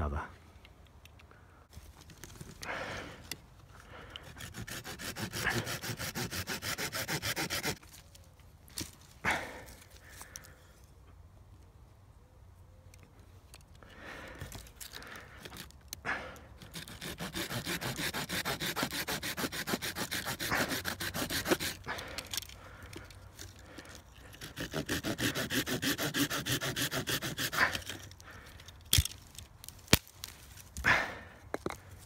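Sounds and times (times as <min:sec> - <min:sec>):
hand saw cutting stick: 0:04.1 - 0:07.8, 0:16.6 - 0:28.2.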